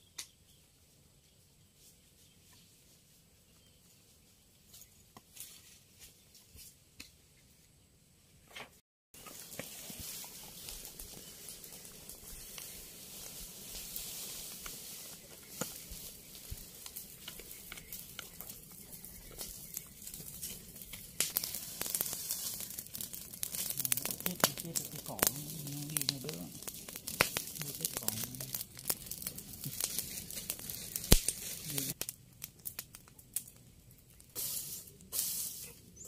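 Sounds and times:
brush fire crackling and popping: 0:09.2 - 0:36.0
loud fire crack: 0:09.3 - 0:35.7.

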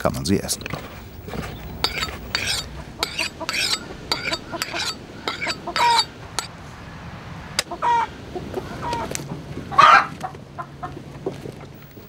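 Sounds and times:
hens clucking: 0:00.6 - 0:06.5, 0:07.6 - 0:12.0.

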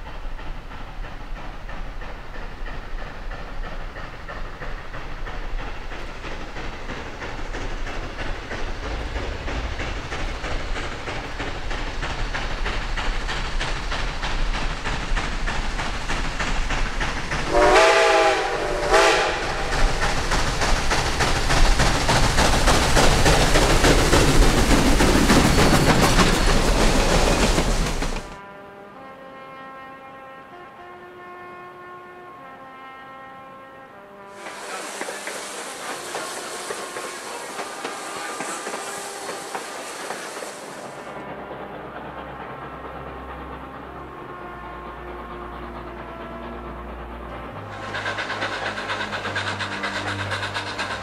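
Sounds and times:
steam locomotive running: 0:00.0 - 0:28.5, 0:34.2 - 0:51.0
steam whistle blasts: 0:17.4 - 0:20.0, 0:30.5 - 0:40.8, 0:47.4 - 0:49.6.

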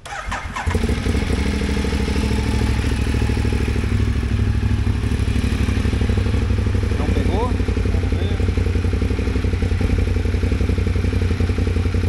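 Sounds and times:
electric starter: 0:00.0 - 0:01.3
motorcycle engine idling: 0:00.0 - 0:12.0.

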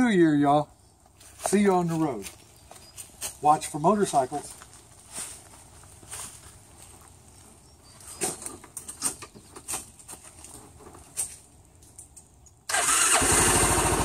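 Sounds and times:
knocks and rustles: 0:08.0 - 0:12.2
scooter engine starting and idling: 0:12.7 - 0:14.0.

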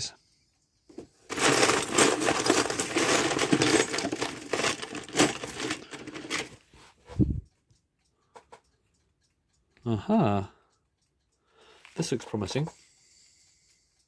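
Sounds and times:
small metal parts clinking: 0:01.3 - 0:06.6.

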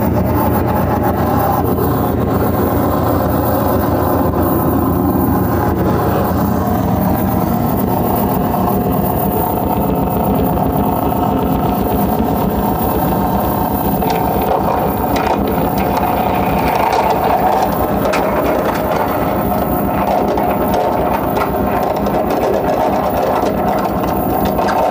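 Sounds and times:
electronic noise music drone: 0:00.0 - 0:24.9
fast low pulse: 0:00.0 - 0:24.9
held mid-range tone: 0:00.0 - 0:24.9
high crackling layer: 0:13.8 - 0:24.9.

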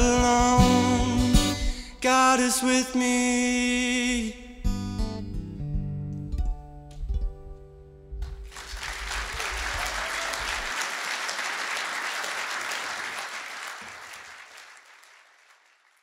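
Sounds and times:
audience applauding: 0:08.4 - 0:16.0.

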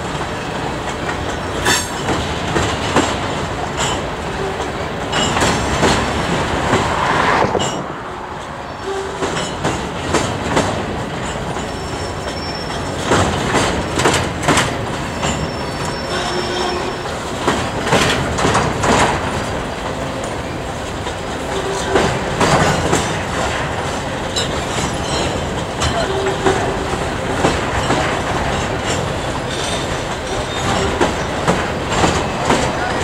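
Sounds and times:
steel wheels clacking over rail joints: 0:00.0 - 0:33.0
train rumble: 0:00.0 - 0:33.0
high wheel squeals: 0:11.6 - 0:13.1, 0:15.1 - 0:17.2, 0:29.4 - 0:31.4.

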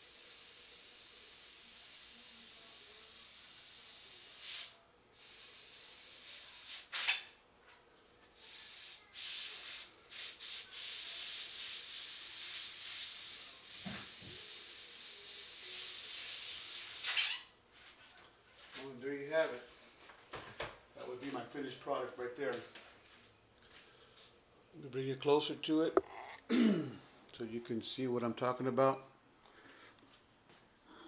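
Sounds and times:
airbrush hissing: 0:00.0 - 0:07.2, 0:08.4 - 0:17.2.

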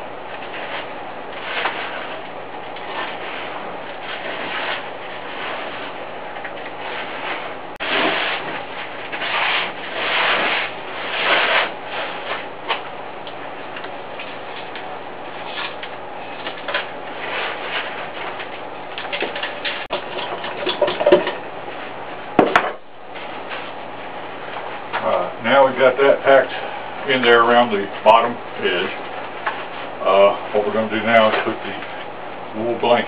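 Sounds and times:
hands scraping wet cement: 0:06.9 - 0:12.8.

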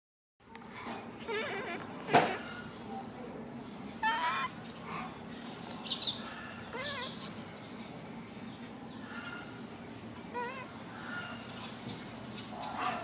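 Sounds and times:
baby monkey crying: 0:01.2 - 0:02.5, 0:04.0 - 0:04.6, 0:06.7 - 0:07.4, 0:10.3 - 0:10.8.

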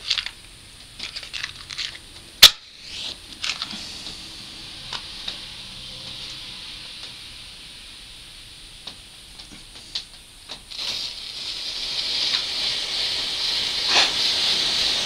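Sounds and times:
match scratching and striking: 0:02.4 - 0:03.7, 0:10.7 - 0:15.0
burning match hissing: 0:02.4 - 0:15.0.

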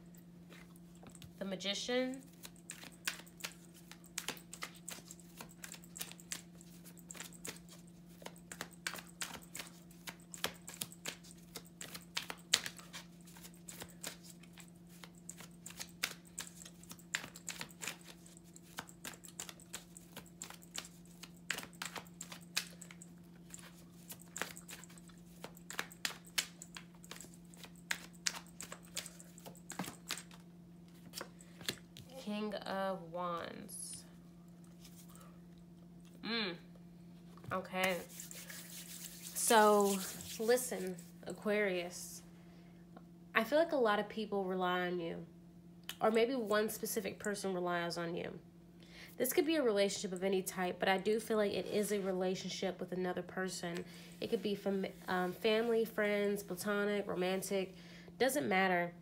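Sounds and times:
steady low hum: 0:00.0 - 0:59.0
cards being shuffled: 0:02.3 - 0:32.1, 0:37.8 - 0:41.0.

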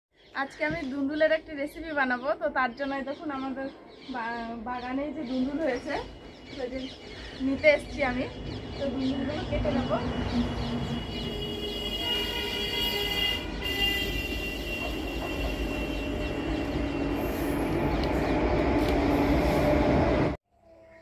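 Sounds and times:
train wheels on rails: 0:14.3 - 0:20.4.

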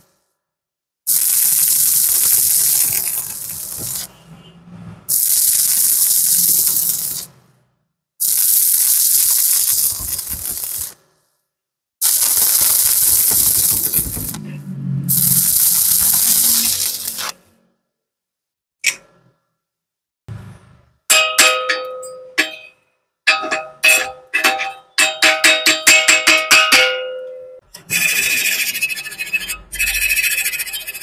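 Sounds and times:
welding arc crackling and sizzling: 0:01.1 - 0:04.2, 0:05.1 - 0:07.4, 0:08.2 - 0:11.1, 0:12.0 - 0:14.5, 0:15.1 - 0:17.5.

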